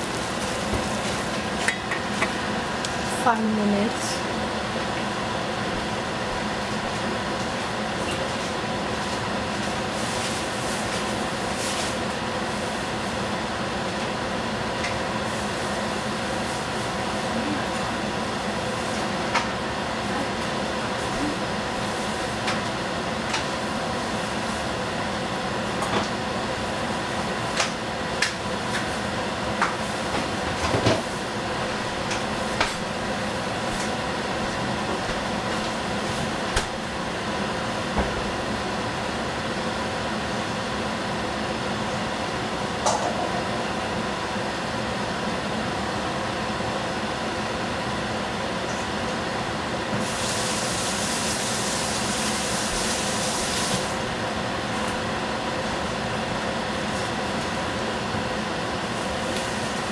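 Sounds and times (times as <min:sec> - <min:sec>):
food hissing in a frying pan: 0:50.0 - 0:54.0.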